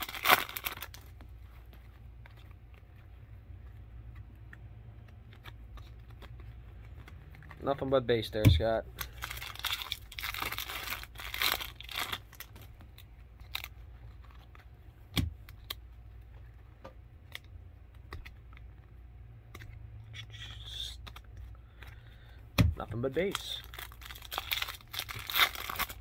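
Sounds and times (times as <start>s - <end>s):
wrapper tearing and crinkling: 0.0s - 1.2s, 8.9s - 12.7s, 13.4s - 14.6s, 23.1s - 26.0s.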